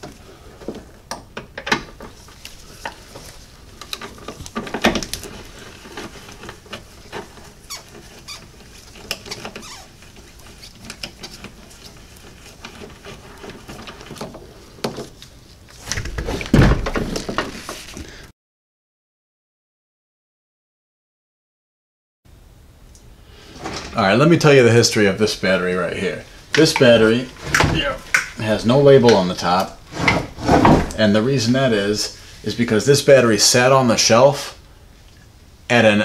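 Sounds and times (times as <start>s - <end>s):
squeaks: 7.4s - 10.1s.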